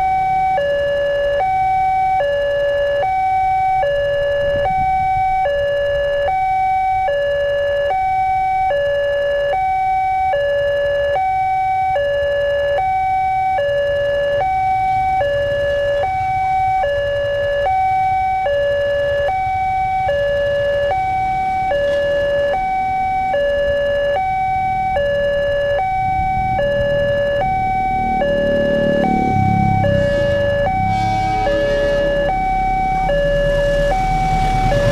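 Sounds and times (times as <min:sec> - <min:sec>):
two-tone crossing alarm: 0:00.0 - 0:34.9
low rumble: 0:25.9 - 0:34.9.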